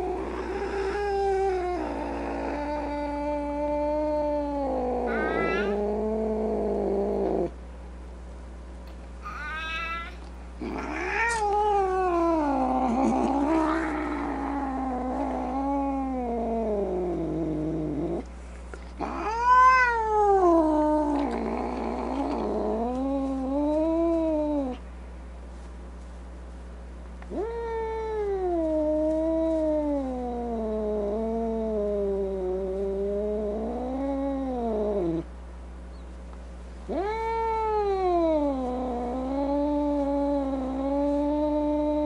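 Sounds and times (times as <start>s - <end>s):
animal calling: 5.0s - 5.8s.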